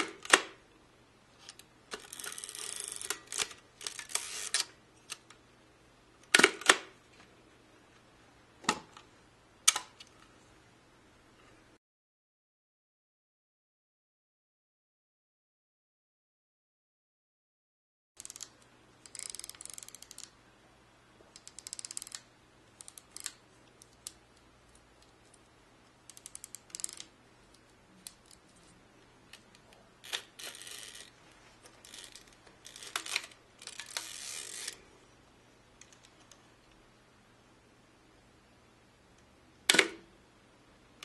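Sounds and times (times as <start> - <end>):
camera ratcheting clicks: 1.9 - 4.7, 18.2 - 20.3, 21.4 - 22.2, 26.1 - 27.1, 31.8 - 34.8.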